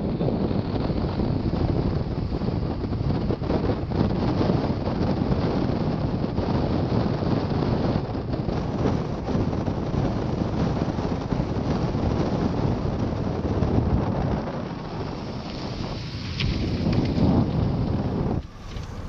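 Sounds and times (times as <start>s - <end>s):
car road noise: 0.0s - 19.0s
wind rushing over microphone: 0.0s - 19.0s.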